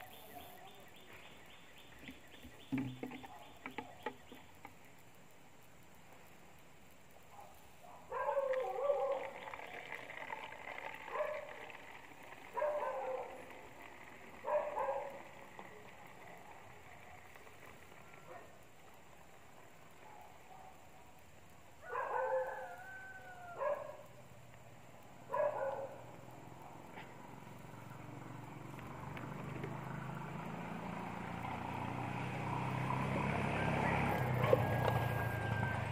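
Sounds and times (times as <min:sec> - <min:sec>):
dog howling and whining: 0:21.8 - 0:24.0.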